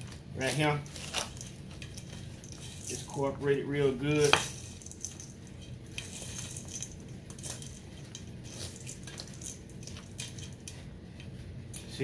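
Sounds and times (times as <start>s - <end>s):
spoon scraping metal bowl: 4.2s - 10.7s.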